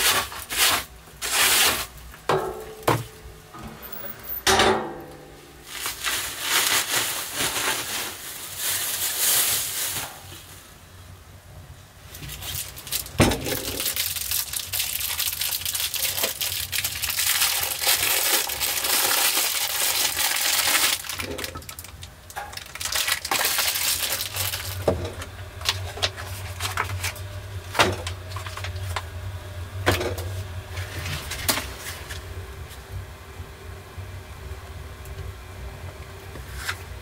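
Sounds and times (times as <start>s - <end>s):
plastic packaging crinkling: 0.0s - 2.2s, 5.6s - 10.7s, 12.0s - 29.1s.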